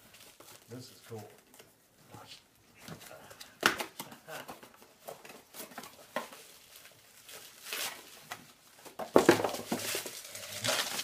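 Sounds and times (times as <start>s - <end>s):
bubble wrap crinkling: 0.0s - 1.6s, 4.4s - 11.0s.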